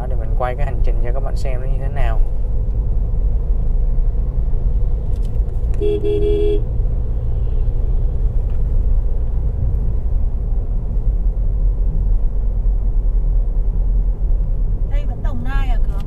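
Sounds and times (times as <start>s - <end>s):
car road and engine rumble: 0.0s - 16.0s
car horn beep: 5.8s - 6.7s.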